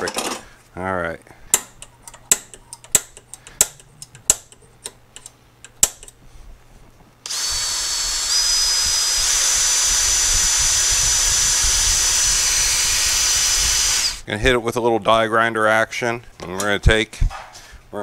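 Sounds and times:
cordless drill drilling steel: 7.2s - 14.2s.

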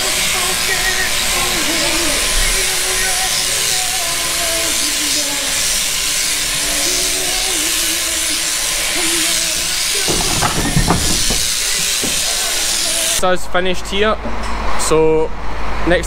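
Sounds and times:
electric shears buzzing: 0.0s - 13.2s
knocks and clatter on wooden board: 10.1s - 12.6s.

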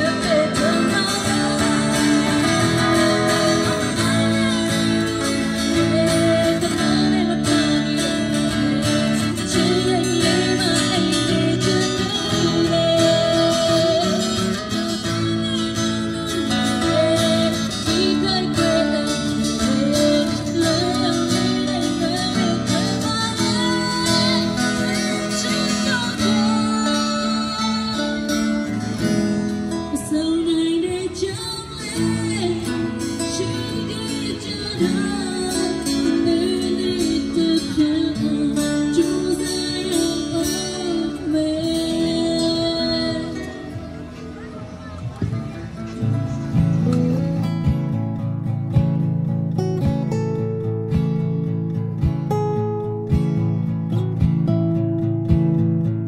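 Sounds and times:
woman singing into a microphone: 0.0s - 43.8s
acoustic guitars strummed and picked: 0.0s - 56.0s.

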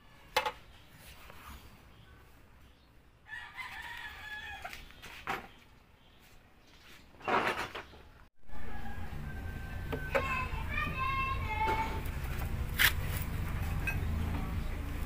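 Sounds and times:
rooster crowing: 3.2s - 4.8s, 8.4s - 10.4s.

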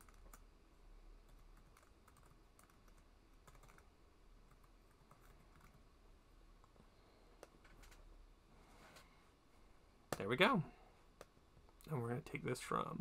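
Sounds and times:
computer keyboard keystrokes: 0.0s - 0.4s, 1.3s - 3.8s.

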